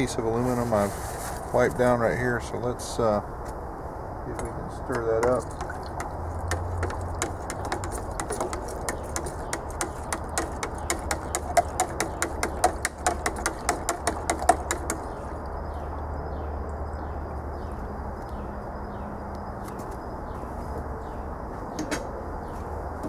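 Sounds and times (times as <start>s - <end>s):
aluminum clicking against plastic pipe: 4.4s - 15.1s
knocks on plastic pipe: 4.9s - 15.1s.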